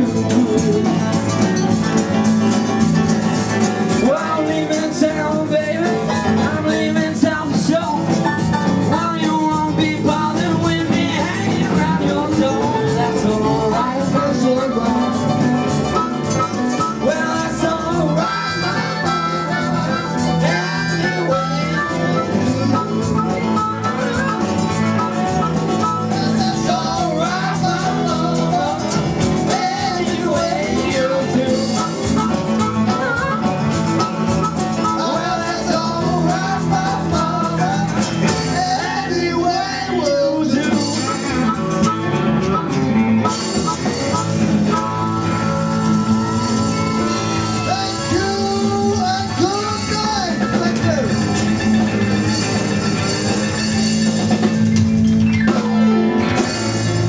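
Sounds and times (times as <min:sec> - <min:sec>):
person singing: 0:00.0 - 0:01.4, 0:03.9 - 0:15.4, 0:16.4 - 0:24.5, 0:25.2 - 0:33.4, 0:34.7 - 0:42.0, 0:44.8 - 0:51.2
electric guitars: 0:00.0 - 0:57.0
harmonica: 0:00.0 - 0:57.0.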